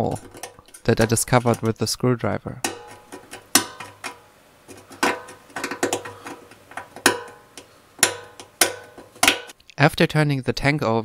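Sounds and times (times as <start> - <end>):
screwdriver tapping metal tank: 0.0 - 1.8, 2.6 - 9.6.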